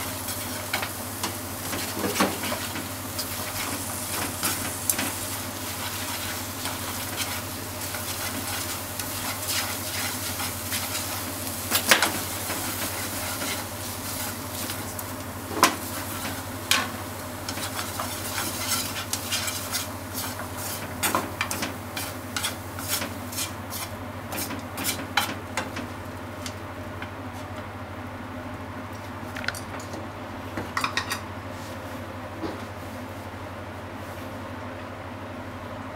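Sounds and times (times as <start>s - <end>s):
food sizzling in frying pan: 0.0s - 27.4s
chopsticks scraping pan: 17.5s - 25.4s.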